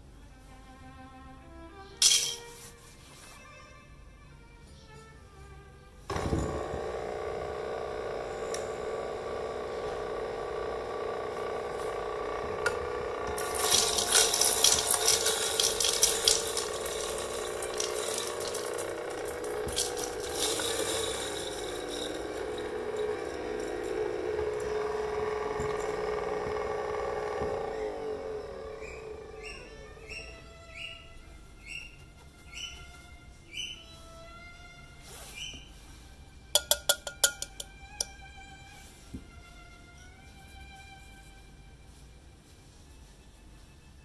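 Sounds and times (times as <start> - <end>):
coffee beans crushing: 6.1 - 30.2, 36.6 - 38.1
coffee grinder motor hum: 6.1 - 31.0, 36.6 - 38.8.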